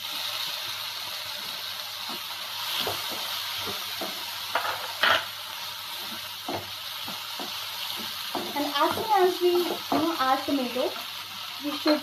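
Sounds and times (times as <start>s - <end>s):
tomatoes sizzling in a frying pan: 0.0s - 12.0s
spatula knocking on pan: 2.9s - 5.3s, 6.0s - 10.2s.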